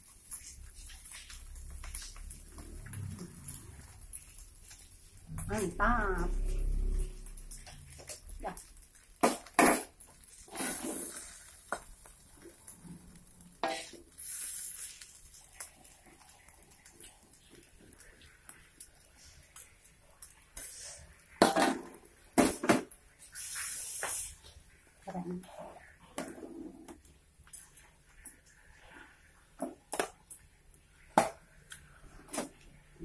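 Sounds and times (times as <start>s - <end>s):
dishes and utensils clinking: 13.6s - 13.9s, 21.4s - 22.8s.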